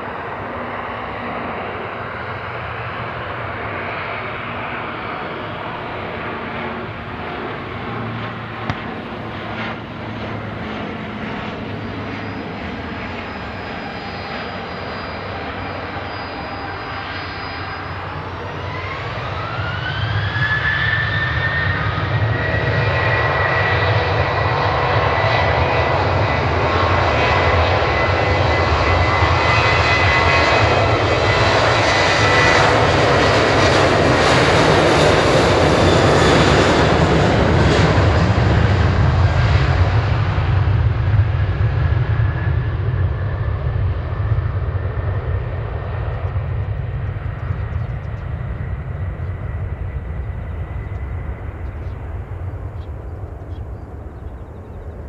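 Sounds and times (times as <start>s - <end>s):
high-pitched engine whine: 0.0s - 55.0s
jet engines spooling up: 0.0s - 55.0s.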